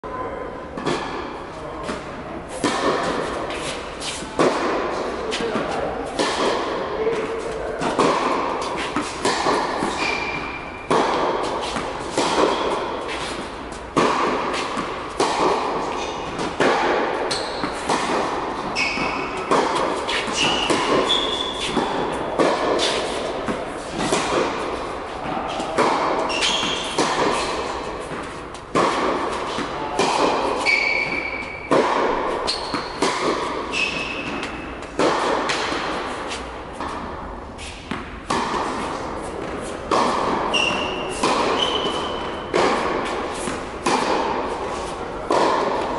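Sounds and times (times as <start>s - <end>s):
racket striking ball: 0.8s - 45.9s
tennis ball bouncing: 0.8s - 45.9s
shoes squeaking on court: 8.6s - 13.9s, 15.8s - 16.6s, 17.2s - 24.8s, 25.4s - 28.6s, 29.3s - 35.0s, 40.4s - 43.7s.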